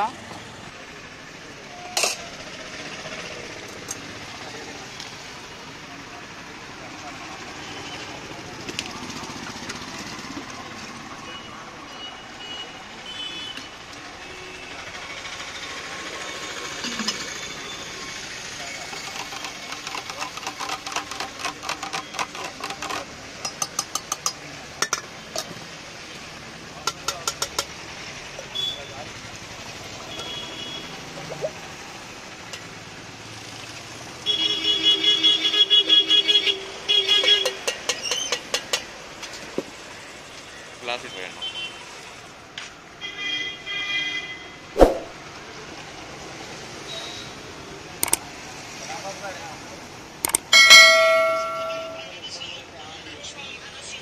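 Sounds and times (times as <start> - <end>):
passing traffic: 0.0 - 54.0
sharp knock: 44.8 - 45.1.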